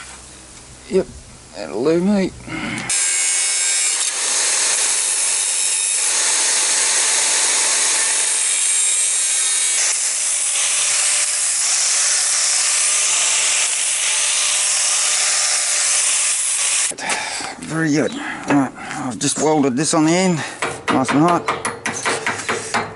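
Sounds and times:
angle grinder grinding steel: 0:02.9 - 0:17.0.

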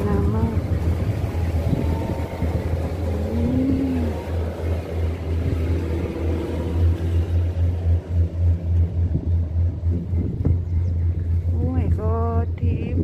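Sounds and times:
gondola cabin rumbling: 0:00.0 - 0:13.0.

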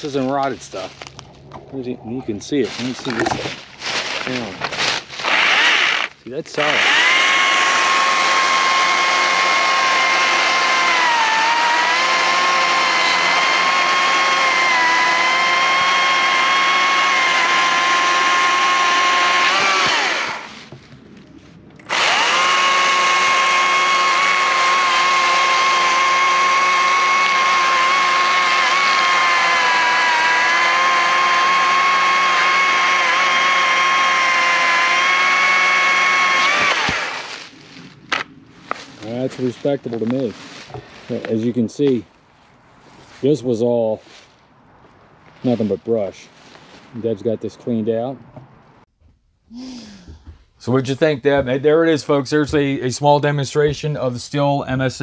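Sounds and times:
electric chainsaw cutting wood: 0:04.4 - 0:20.7, 0:21.9 - 0:37.5.

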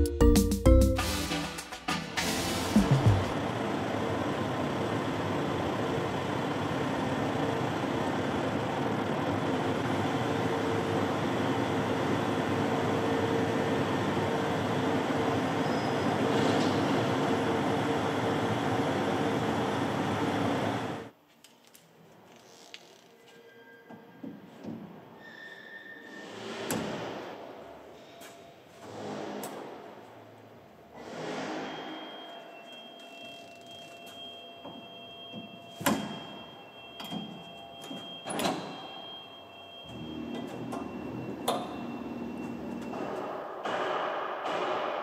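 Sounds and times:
combine harvester running: 0:02.2 - 0:21.1.

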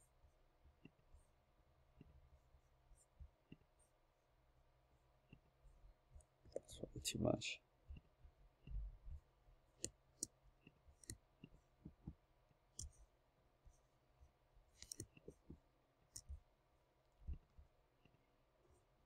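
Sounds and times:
mouse and keyboard clicks: 0:09.8 - 0:10.4, 0:11.0 - 0:12.1, 0:12.7 - 0:13.0, 0:14.8 - 0:16.4.

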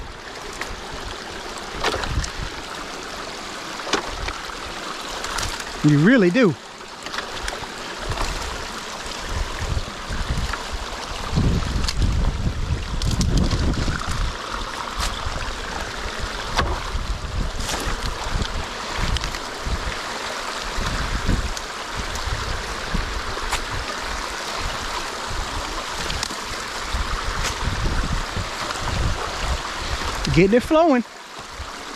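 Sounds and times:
wind rumble on microphone: 0:00.0 - 0:02.8, 0:07.4 - 0:30.8
water rushing and swirling: 0:00.0 - 0:31.9
rake dragging sticks and mud: 0:00.2 - 0:10.7, 0:11.3 - 0:31.5
sticks snapping and knocking: 0:12.9 - 0:14.2, 0:26.0 - 0:26.4.

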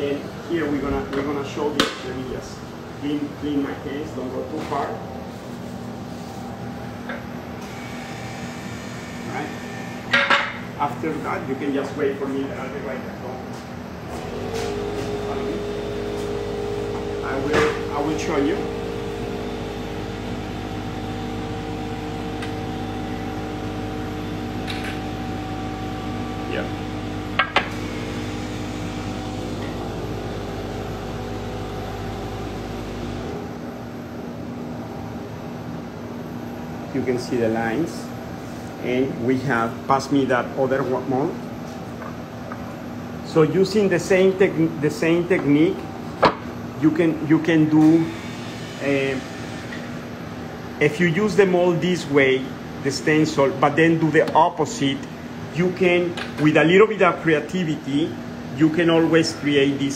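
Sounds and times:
machine hum: 0:00.0 - 0:59.9.

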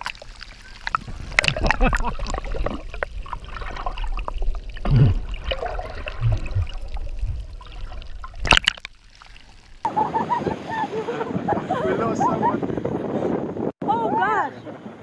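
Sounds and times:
muffled underwater gurgling: 0:00.0 - 0:08.8
sharp splash: 0:00.0 - 0:09.9.

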